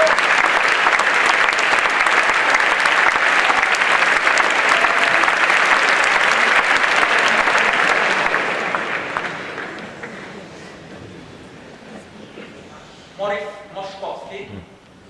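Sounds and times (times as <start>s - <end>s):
large audience applauding: 0.0s - 10.6s.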